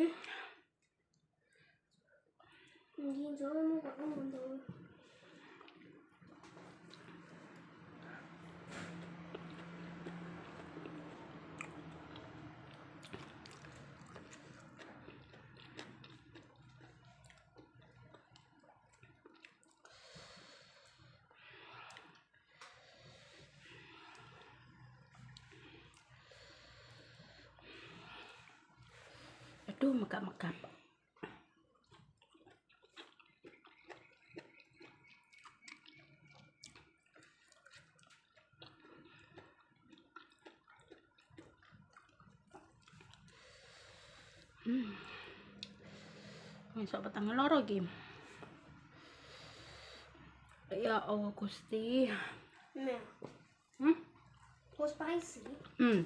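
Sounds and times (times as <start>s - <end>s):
breaths: 0.1s - 0.7s, 1.5s - 3.1s, 4.8s - 6.6s, 19.8s - 29.7s, 43.1s - 46.8s, 47.7s - 50.6s, 52.1s - 52.7s
wet clicks of eating by hand: 6.5s - 20.1s, 21.7s - 22.8s, 31.2s - 43.4s, 45.5s - 45.8s.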